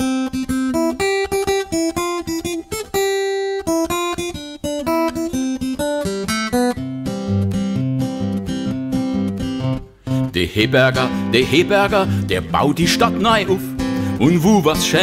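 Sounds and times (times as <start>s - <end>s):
guitar picking melody: 0.0s - 15.0s.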